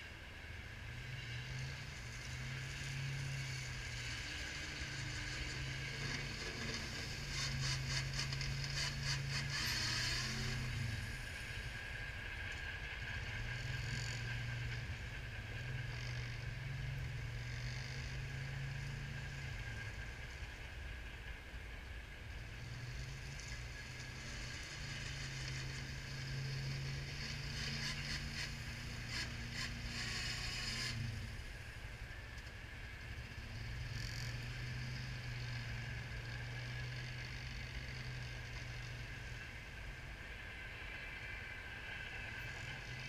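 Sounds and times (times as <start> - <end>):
utility vehicle engine running: 0.0 - 43.0
plow blade scraping snow: 0.9 - 20.1, 22.7 - 31.8.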